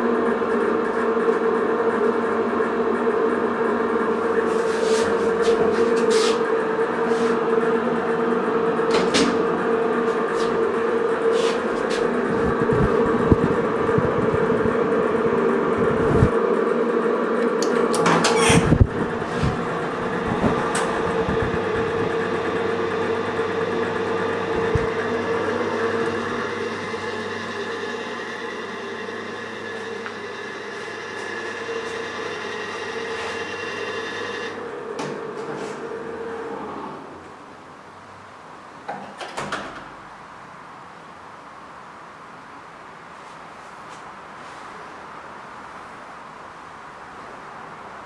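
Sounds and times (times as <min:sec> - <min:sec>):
elevator electric hum: 0:00.0 - 0:40.3
sliding doors opening: 0:04.1 - 0:13.7, 0:17.7 - 0:28.6, 0:29.5 - 0:37.5, 0:38.9 - 0:40.1.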